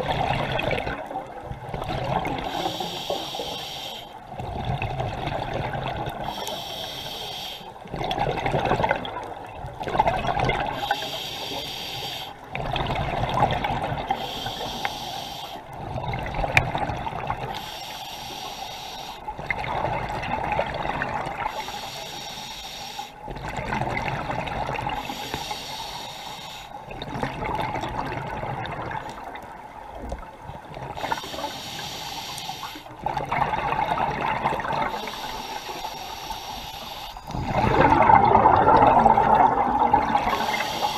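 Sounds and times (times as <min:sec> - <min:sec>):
burbling rush of bubbles: 0:00.0 - 0:02.7, 0:04.3 - 0:06.3, 0:07.9 - 0:11.0, 0:12.5 - 0:14.2, 0:15.8 - 0:17.6, 0:19.4 - 0:21.5, 0:23.3 - 0:25.1, 0:26.9 - 0:29.6, 0:33.0 - 0:35.2, 0:37.3 - 0:40.9
hissing regulator inhale: 0:02.3 - 0:04.2, 0:06.2 - 0:07.8, 0:10.8 - 0:12.5, 0:14.1 - 0:15.8, 0:17.5 - 0:19.4, 0:21.4 - 0:23.2, 0:24.9 - 0:26.9, 0:31.0 - 0:33.0, 0:34.9 - 0:37.6, 0:40.2 - 0:40.9.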